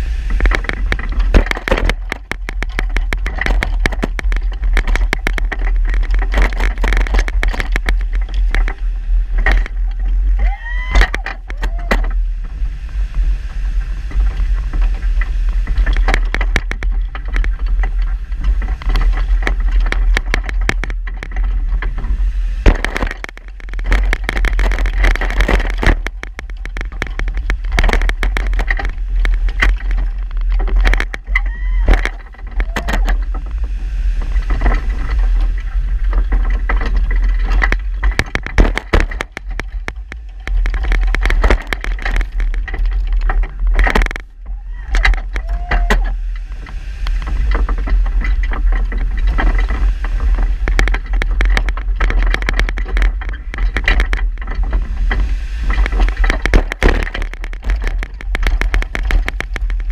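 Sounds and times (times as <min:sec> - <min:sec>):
plow rig knocking and rattling: 0:00.0 - 0:59.9
plow blade scraping snow: 0:33.2 - 0:45.4, 0:46.1 - 0:59.9.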